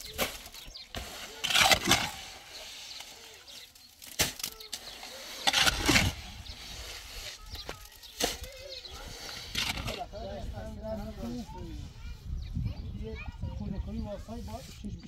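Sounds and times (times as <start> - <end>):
shovel scraping wet concrete: 0.0 - 10.6.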